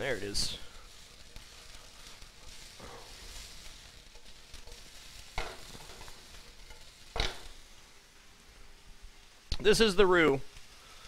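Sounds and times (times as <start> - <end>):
chicken sizzling in skillet: 0.0 - 11.0.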